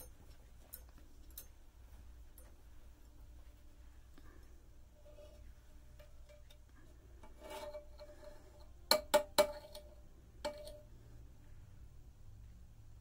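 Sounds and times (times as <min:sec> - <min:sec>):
metal tool tapping wax pot: 0:00.0 - 0:01.6, 0:06.0 - 0:10.9
soft rub: 0:01.8 - 0:08.8.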